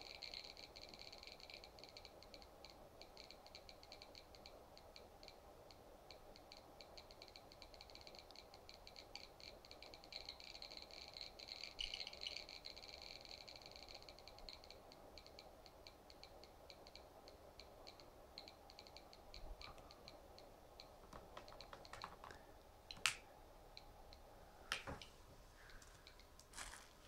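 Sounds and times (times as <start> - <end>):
sharp clicks or knocks: 24.7 - 25.1.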